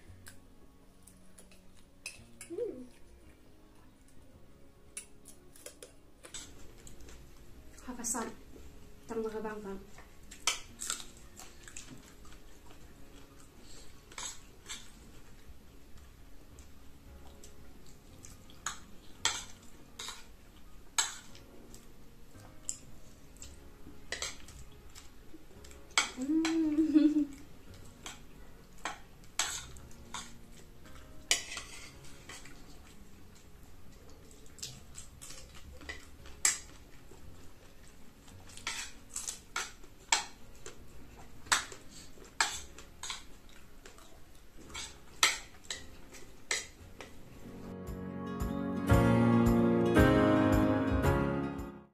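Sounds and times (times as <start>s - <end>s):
person humming: 2.4s - 3.0s, 26.2s - 27.4s.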